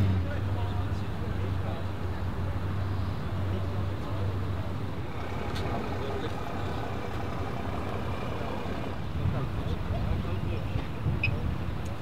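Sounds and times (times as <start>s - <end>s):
car engine idling: 3.6s - 9.2s.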